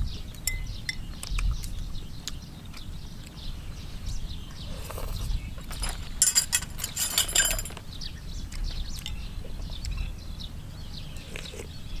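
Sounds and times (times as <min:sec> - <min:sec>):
small birds chirping: 0:00.0 - 0:12.0
metal spoon clinking on bowl: 0:05.8 - 0:07.8.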